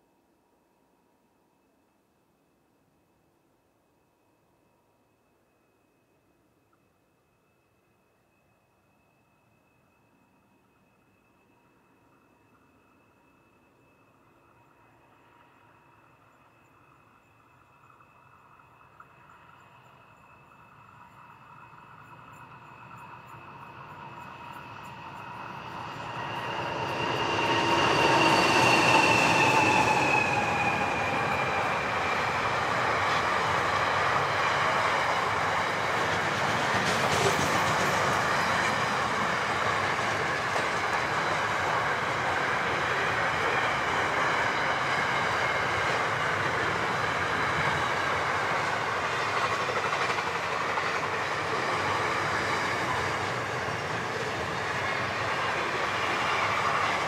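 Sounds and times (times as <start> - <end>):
locomotive engines passing: 15.1 - 57.0.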